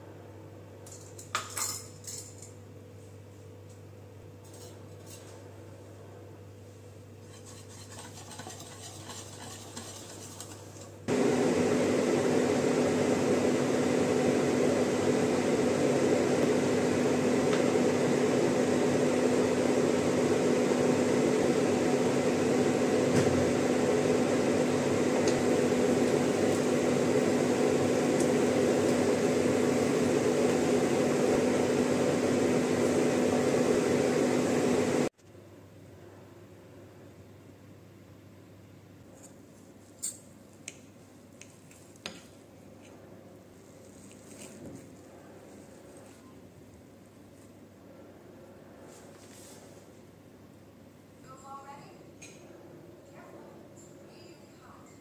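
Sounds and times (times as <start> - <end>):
utensils clinking on bowl: 0.9 - 2.6.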